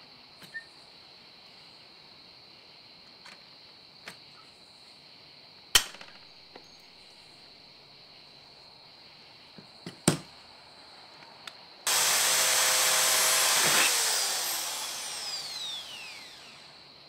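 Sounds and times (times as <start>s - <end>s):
electric drill drilling sheet metal: 11.9s - 16.9s.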